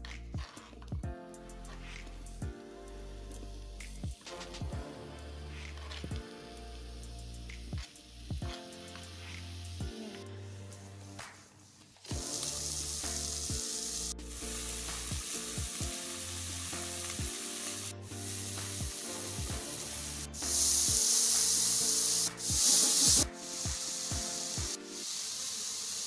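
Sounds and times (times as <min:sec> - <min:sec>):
background music low notes: 0:00.0 - 0:25.6
vegetables sizzling in a wok: 0:12.3 - 0:26.0.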